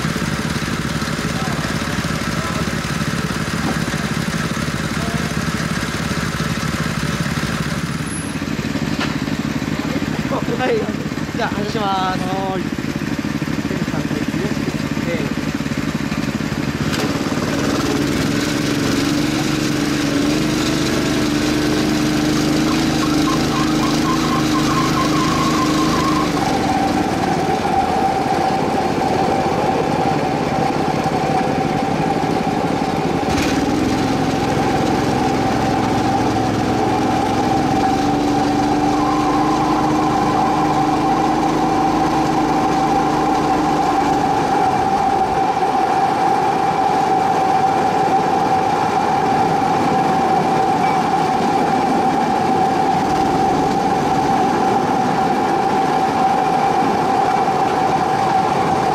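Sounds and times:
cart motor running: 0.0s - 58.9s
wheels rolling on rails: 15.4s - 58.9s.

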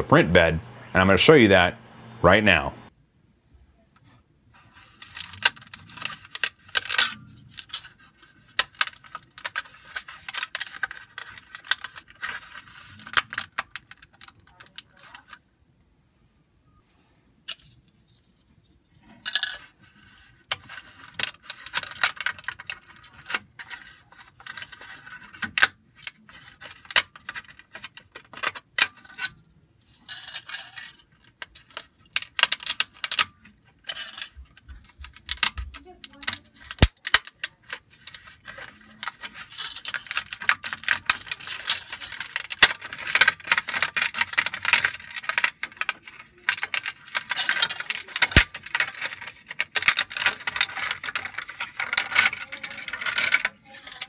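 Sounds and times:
hard plastic cracking and scraping: 4.0s - 15.4s, 17.4s - 54.0s.

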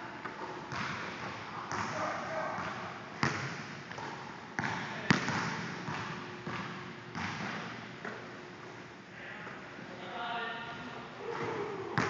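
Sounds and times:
basketball bouncing on gym floor: 0.2s - 8.2s, 11.3s - 12.0s.

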